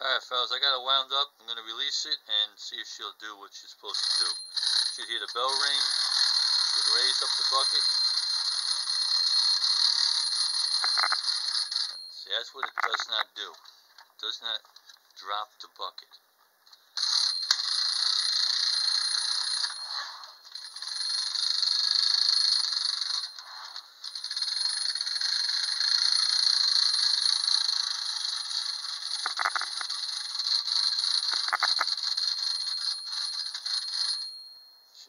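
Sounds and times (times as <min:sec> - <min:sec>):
clockwork toy rattling: 0:03.9 - 0:12.0, 0:12.6 - 0:13.2, 0:17.0 - 0:34.4.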